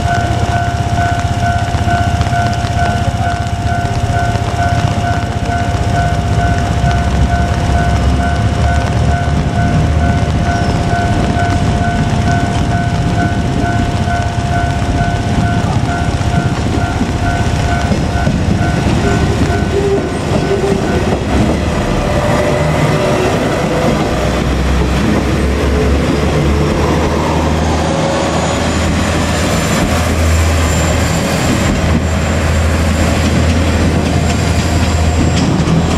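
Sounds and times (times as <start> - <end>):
level crossing bell ringing: 0.0 - 23.0
train wheels clattering: 0.0 - 27.2, 28.1 - 35.9
diesel engines rumbling: 0.0 - 35.9.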